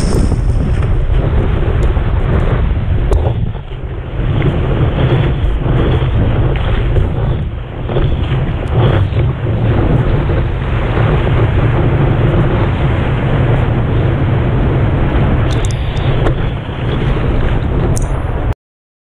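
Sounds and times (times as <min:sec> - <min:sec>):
wind buffeting microphone: 0:00.0 - 0:18.5.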